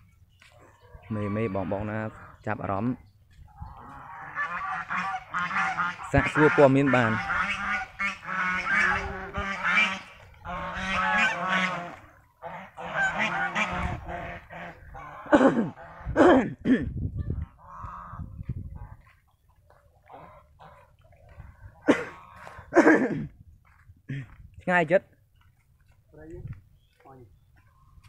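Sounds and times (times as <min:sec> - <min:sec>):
geese honking: 0:03.6 - 0:16.2, 0:17.6 - 0:19.0, 0:20.0 - 0:21.2, 0:21.8 - 0:22.8.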